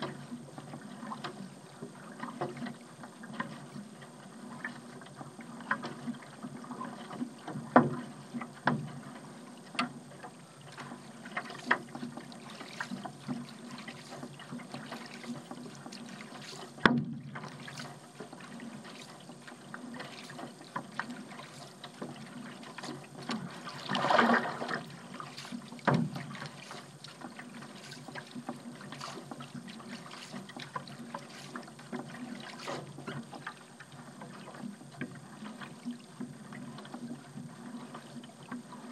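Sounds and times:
paddle pulling through water: 0:00.0 - 0:38.9
rush of splashing water: 0:10.3 - 0:35.0
water drips and splashes: 0:10.6 - 0:34.6.

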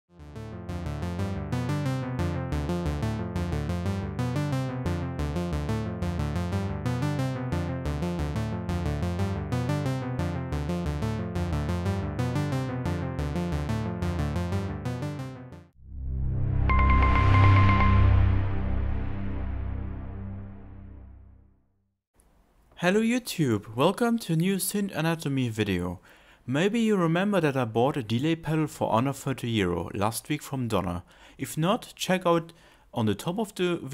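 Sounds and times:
synthesizer sequenced pattern with delay: 0:00.1 - 0:15.8, 0:16.7 - 0:18.4.

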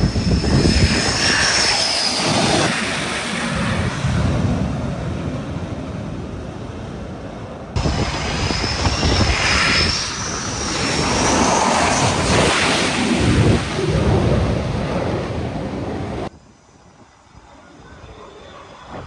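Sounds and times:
high wavering turbine whine: 0:00.0 - 0:19.0
jet engines roaring: 0:00.0 - 0:19.0.

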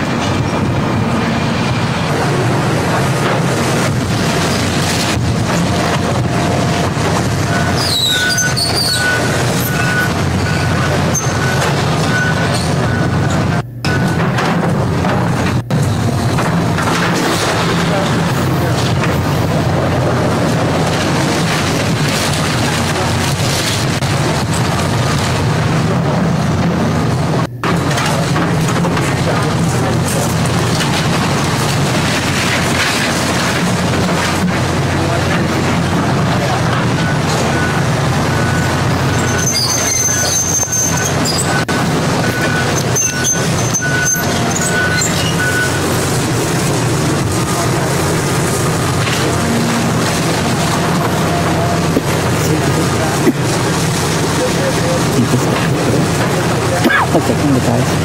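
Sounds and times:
debris rumbling and crunching: 0:00.0 - 0:58.0
excavator diesel drone: 0:00.0 - 0:58.0
high squeals and creaks: 0:04.2 - 0:13.5, 0:36.6 - 0:57.2.

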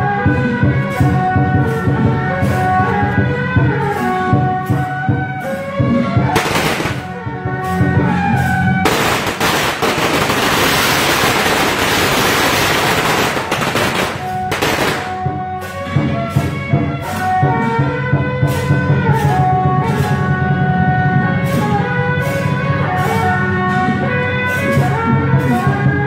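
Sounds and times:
horn-like melody: 0:00.0 - 0:26.0
procession music: 0:00.0 - 0:26.0
steady percussion beats: 0:00.0 - 0:26.0
firecrackers crackling: 0:06.3 - 0:07.2, 0:08.8 - 0:15.4.

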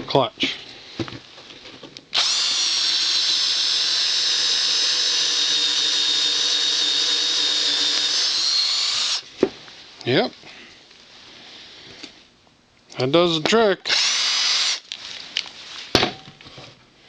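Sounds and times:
cordless drill whining: 0:02.1 - 0:09.2, 0:13.9 - 0:15.0.

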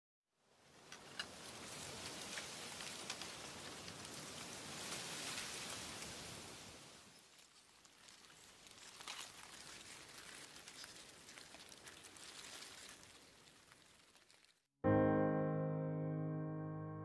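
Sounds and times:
soft rain hiss: 0:00.4 - 0:14.7
raindrop ticks: 0:02.0 - 0:04.5.

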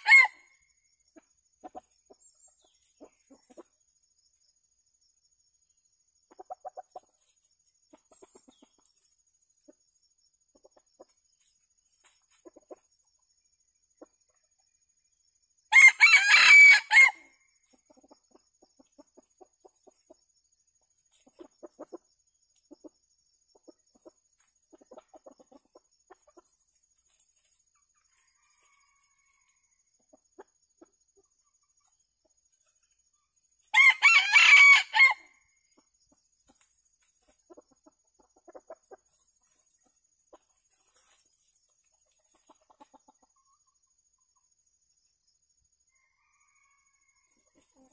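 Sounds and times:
rooster crowing: 0:00.0 - 0:00.5, 0:15.7 - 0:17.3, 0:33.7 - 0:35.3, 0:45.9 - 0:47.4
soft chicken clucks: 0:00.0 - 0:15.4, 0:17.5 - 0:33.7, 0:35.2 - 0:47.9.

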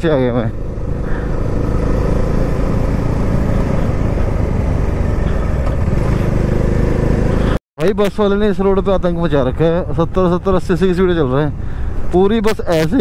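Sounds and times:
motorcycle engine running: 0:00.1 - 0:07.6.

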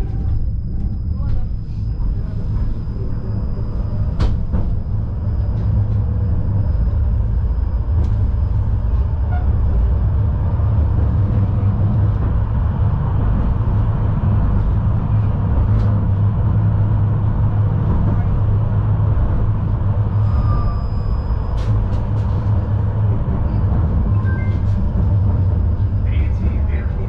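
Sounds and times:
thin high whine: 0:00.0 - 0:10.0, 0:20.1 - 0:22.9
tram wheels rumbling on rails: 0:00.0 - 0:27.0.

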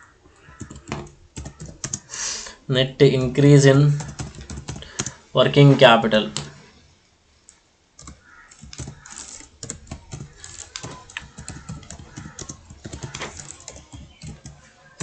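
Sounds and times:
typing on computer keyboard: 0:00.4 - 0:02.1, 0:04.0 - 0:05.2, 0:08.0 - 0:15.0.

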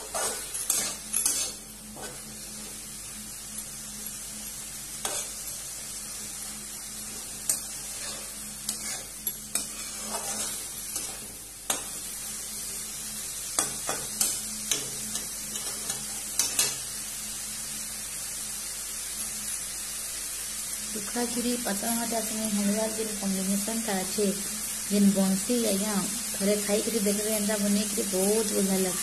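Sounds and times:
spatula scraping pan: 0:00.0 - 0:02.3, 0:05.0 - 0:05.4, 0:07.1 - 0:12.0
food sizzling in oil: 0:00.0 - 0:29.0.

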